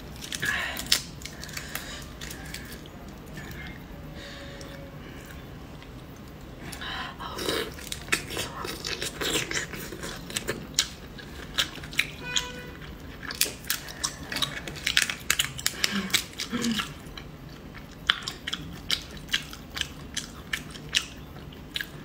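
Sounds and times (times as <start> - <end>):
wet slurping and chewing: 6.1 - 22.0.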